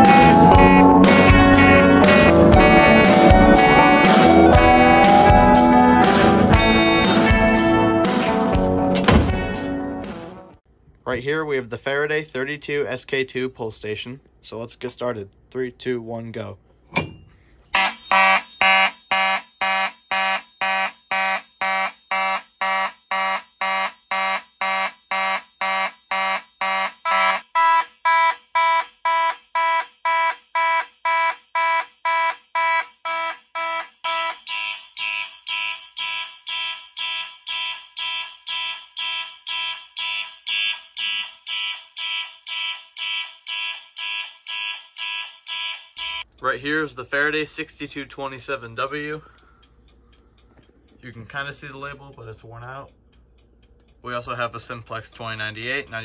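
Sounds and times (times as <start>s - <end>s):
fire alarm horns blaring: 0.0s - 8.5s, 17.7s - 46.4s.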